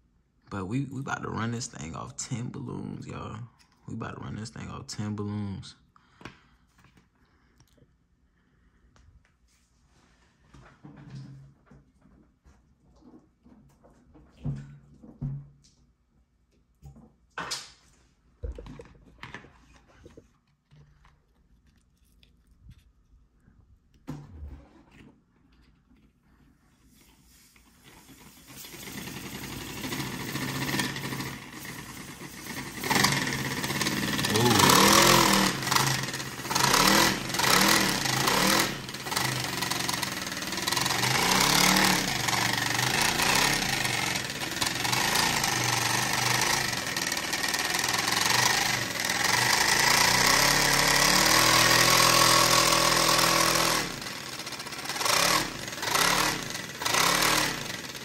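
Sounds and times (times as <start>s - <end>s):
compressed-air engine clatter: 28.0s - 50.0s.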